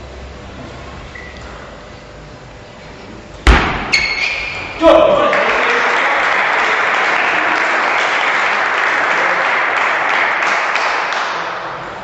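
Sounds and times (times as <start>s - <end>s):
spectators clapping: 5.0s - 11.8s.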